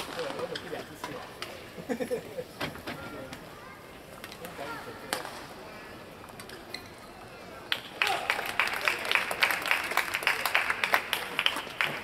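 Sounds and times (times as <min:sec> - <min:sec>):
audience clapping and cheering: 0:07.7 - 0:12.0.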